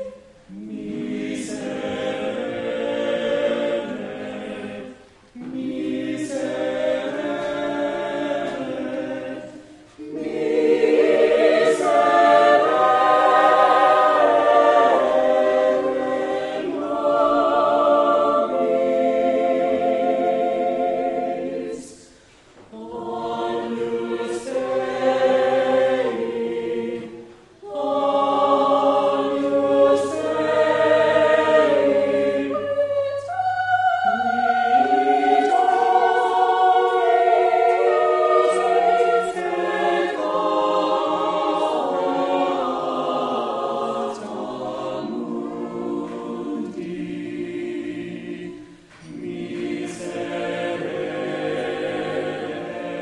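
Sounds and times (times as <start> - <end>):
choir singing: 0.0 - 53.0.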